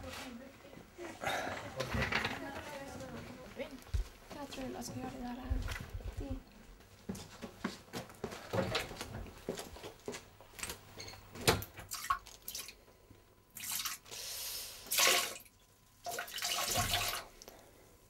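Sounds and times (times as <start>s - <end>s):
urine splashing into toilet bowl: 11.9s - 12.8s, 13.6s - 14.1s, 14.8s - 17.4s.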